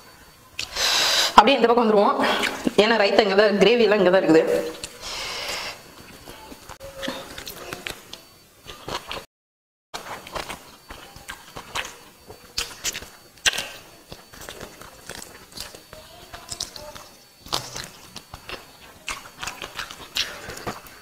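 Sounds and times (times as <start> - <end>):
wet chewing smacks: 6.0 - 9.3, 10.0 - 21.0.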